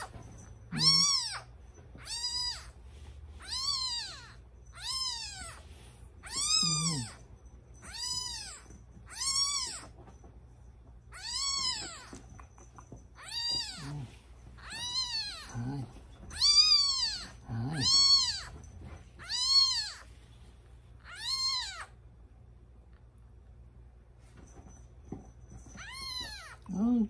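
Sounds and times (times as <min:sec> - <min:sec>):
kitten mewing: 0:00.7 - 0:02.7, 0:06.2 - 0:07.2, 0:13.2 - 0:18.5.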